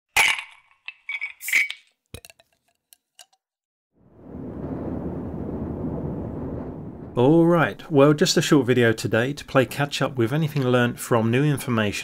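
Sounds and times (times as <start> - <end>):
low rumble: 4.0 - 8.3.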